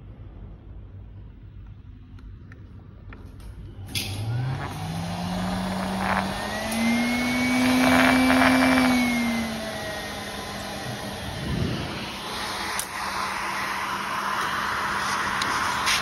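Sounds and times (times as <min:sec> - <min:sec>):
pet blower motor hum and whine: 0:03.8 - 0:16.0
rush of air: 0:05.4 - 0:16.0.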